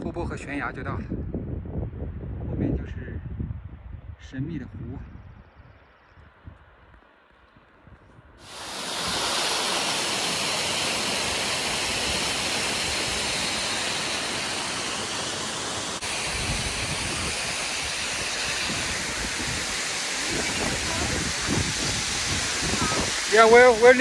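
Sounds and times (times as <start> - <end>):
waterfall rushing: 8.4 - 24.0.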